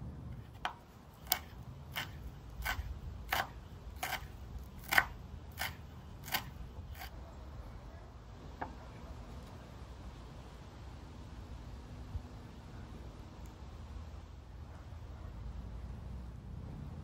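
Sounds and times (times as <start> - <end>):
knife chopping on wooden board: 0.6 - 7.1.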